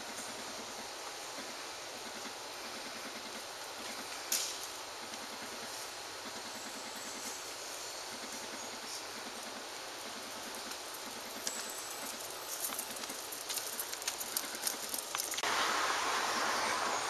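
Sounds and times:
outdoor street noise: 0.0 - 17.0
dog paws clicking on pavement: 8.9 - 15.6
loud rushing noise: 15.4 - 17.0.

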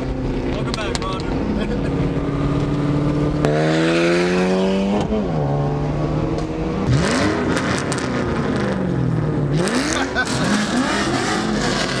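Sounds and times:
car engine accelerating: 0.0 - 12.0.

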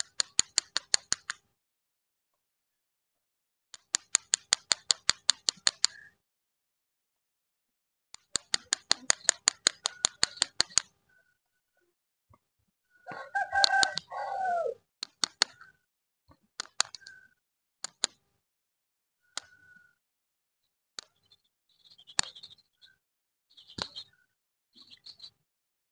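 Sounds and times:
sharp clicks: 0.0 - 1.4, 3.8 - 6.1, 8.2 - 10.9, 13.6 - 14.1, 15.0 - 15.7, 16.6 - 17.2, 17.8 - 18.2
rooster crowing: 13.0 - 14.8.

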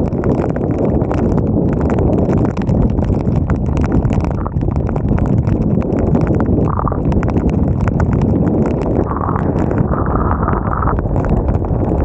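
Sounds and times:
wind buffeting microphone: 0.0 - 12.0
sharp ticks: 2.3 - 11.8.

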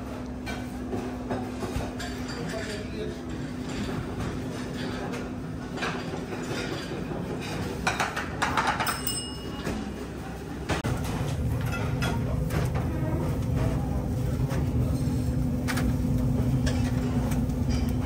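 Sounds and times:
low rumble of grill: 10.3 - 18.0.

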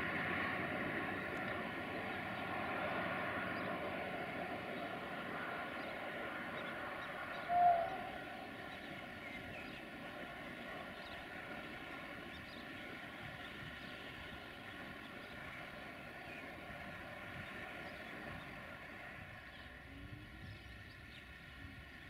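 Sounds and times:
distant diesel locomotive drone: 0.0 - 22.0.

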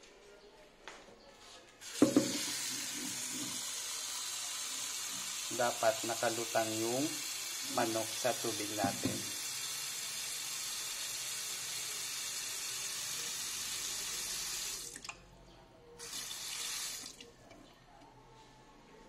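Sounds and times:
tap water running into metal pot: 1.8 - 15.2.

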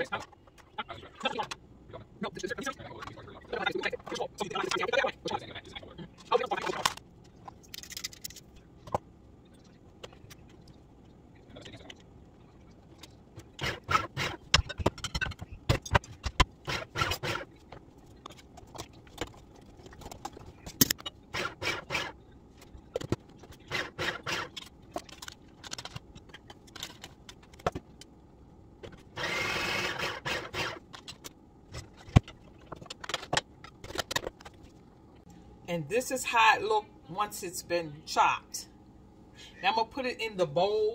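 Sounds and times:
food processor chopping: 13.6 - 14.6, 16.3 - 17.5, 21.4 - 22.1, 23.7 - 24.6, 29.1 - 30.8
clicks and knocks of handling: 24.5 - 28.2, 30.9 - 34.7.

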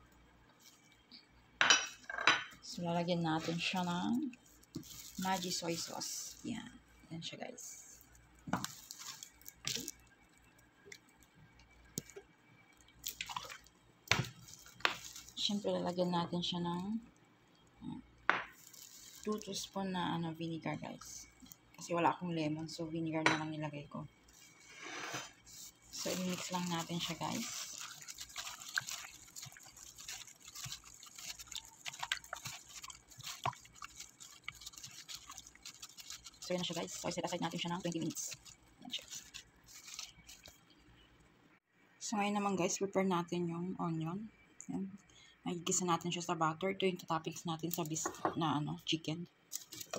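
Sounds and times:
liquid splashing in a bowl: 12.8 - 15.4, 25.5 - 40.6
wet squelching of raw chicken: 13.0 - 13.7, 25.4 - 40.6.

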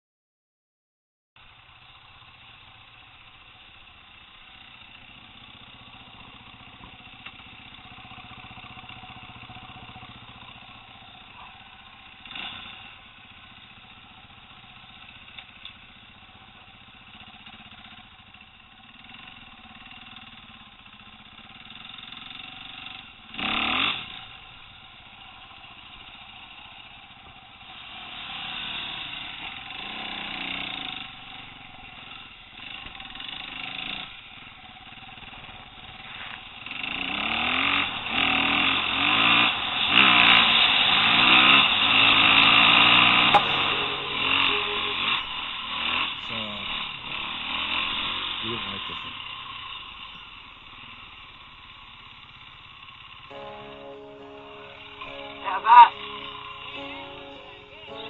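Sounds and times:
motorcycle engine revving: 1.7 - 44.4, 45.4 - 54.8.

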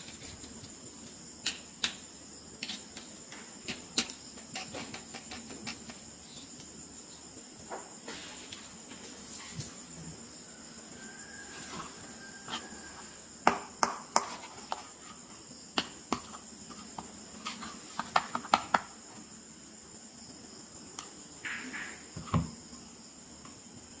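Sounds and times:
faint high-pitched whine: 0.0 - 24.0.

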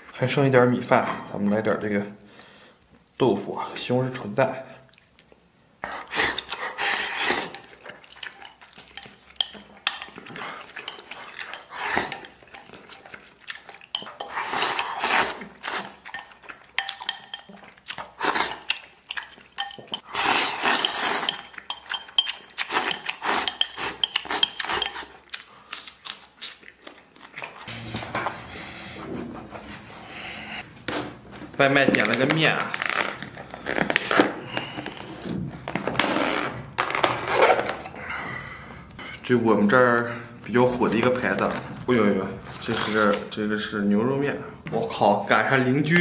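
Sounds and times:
chewing: 4.1 - 27.9.

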